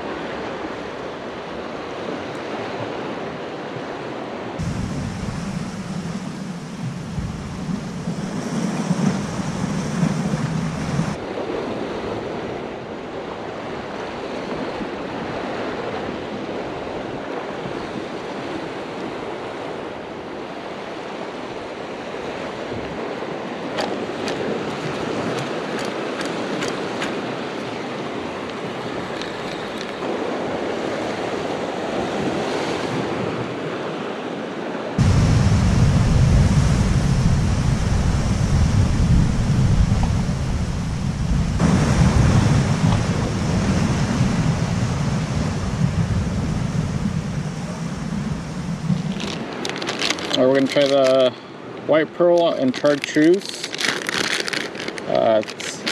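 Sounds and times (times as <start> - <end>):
ocean surf breaking: 0.0 - 53.7
wind buffeting microphone: 4.6 - 11.7, 35.0 - 50.3.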